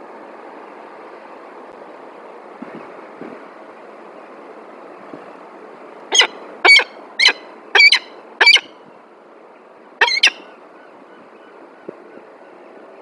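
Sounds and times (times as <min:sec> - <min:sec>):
falcon harsh calls: 0:06.1 - 0:08.7, 0:10.0 - 0:10.4.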